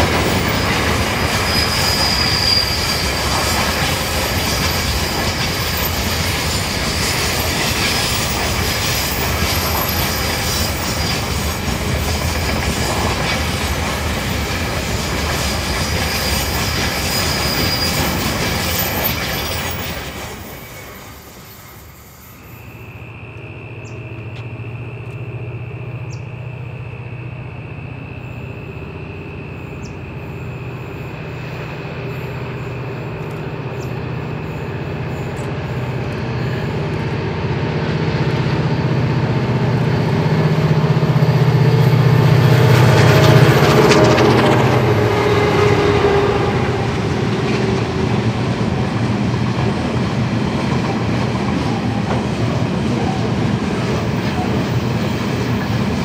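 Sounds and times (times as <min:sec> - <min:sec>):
wheel flanges squealing: 0:00.0 - 0:25.2
distant diesel locomotive droning: 0:00.0 - 0:56.0
train wheels rumbling on rails: 0:00.0 - 0:56.0.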